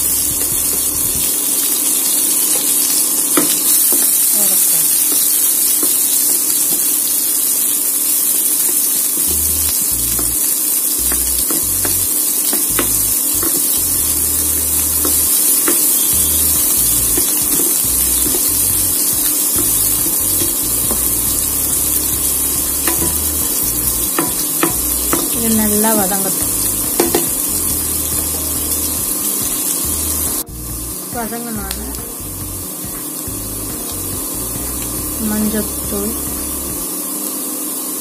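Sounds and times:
onions sizzling in hot oil: 0.0 - 38.0
spatula scraping and tapping pan: 11.0 - 25.6, 26.8 - 28.9.

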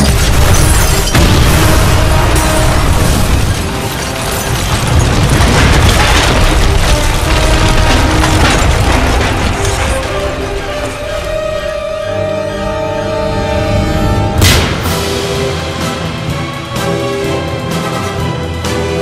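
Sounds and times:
explosion and fire rumble: 0.0 - 11.6, 14.4 - 15.2
dramatic music score: 0.0 - 19.0.

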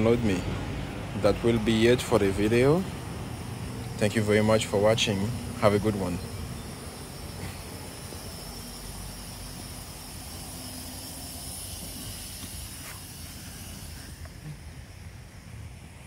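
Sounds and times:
continuous hiss: 0.0 - 16.0
high-pitched whine: 0.0 - 16.0.

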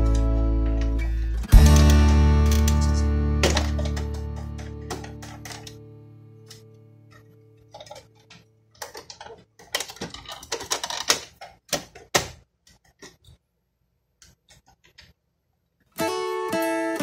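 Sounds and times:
plastic clicks and knocks: 3.4 - 5.8, 6.4 - 13.4.

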